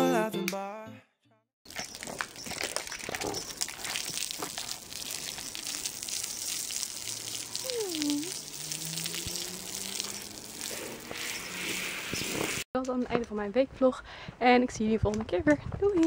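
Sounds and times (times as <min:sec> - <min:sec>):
hose water spraying: 0:03.2 - 0:12.7.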